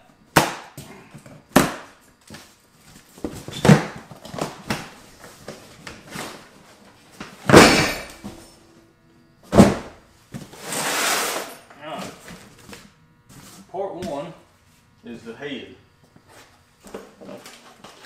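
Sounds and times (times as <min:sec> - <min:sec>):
boxes thudding down: 0:03.2 - 0:04.9, 0:07.3 - 0:08.5, 0:09.5 - 0:10.5.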